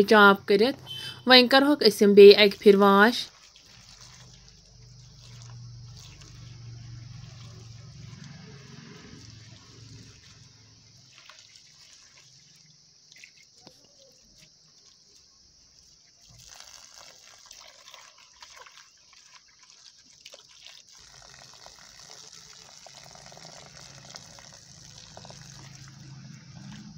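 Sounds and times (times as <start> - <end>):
hands rubbing and rinsing onions: 2.4 - 16.7
running water pouring: 2.4 - 26.9
water splashes and drips: 2.4 - 26.9.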